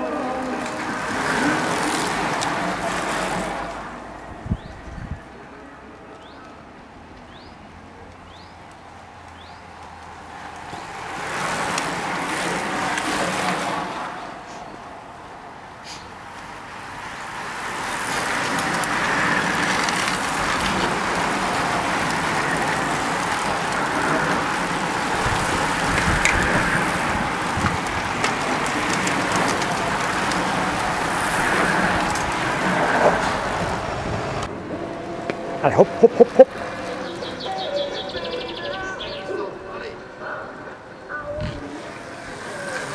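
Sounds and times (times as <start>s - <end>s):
motor vehicle passing: 0.0s - 4.8s, 15.9s - 38.5s
bicycle tyre noise rush: 0.0s - 5.3s, 8.9s - 15.2s, 15.8s - 34.6s, 41.6s - 42.9s
car passing: 0.0s - 42.9s
bicycle drivetrain clicks: 0.4s - 3.7s, 5.9s - 14.0s, 17.0s - 34.5s.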